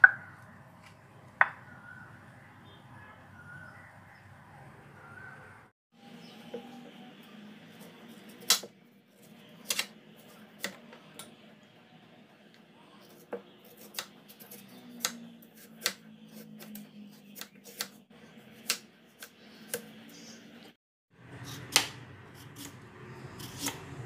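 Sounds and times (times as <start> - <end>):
knife slicing carrot on board: 21.4 - 23.9.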